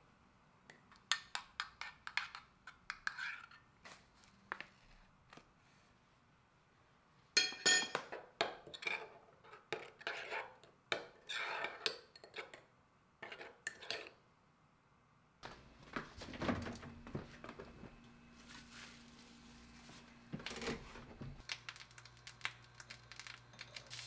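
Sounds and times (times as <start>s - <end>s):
spoon scraping ceramic bowl: 1.3s - 3.6s, 8.7s - 12.6s, 13.2s - 14.2s.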